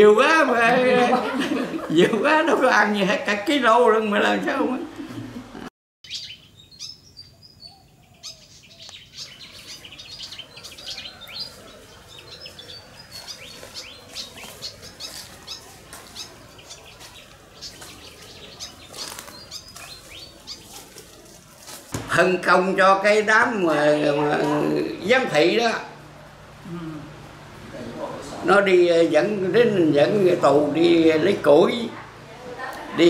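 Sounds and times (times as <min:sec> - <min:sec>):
birds chirping: 0:00.0 - 0:33.0.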